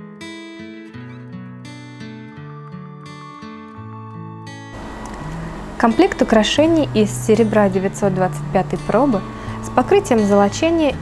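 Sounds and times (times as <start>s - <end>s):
plucked acoustic guitar music: 0.0s - 11.0s.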